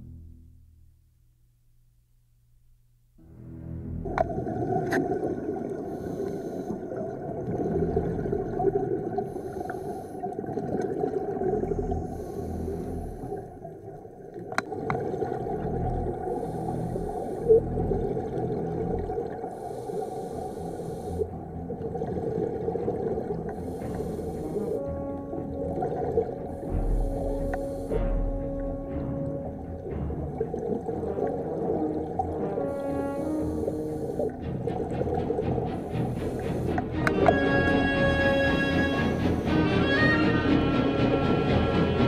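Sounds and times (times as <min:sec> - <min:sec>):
underwater rumble: 0:03.8 - 0:42.0
scuba regulator hissing: 0:23.5 - 0:24.8, 0:26.5 - 0:28.3, 0:32.7 - 0:34.4.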